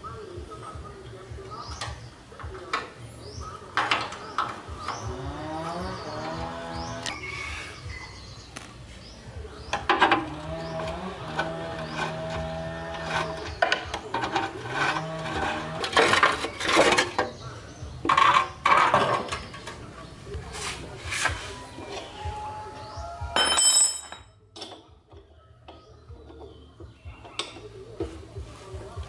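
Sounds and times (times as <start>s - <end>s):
metal tools clinking and knocking: 23.4s - 24.9s.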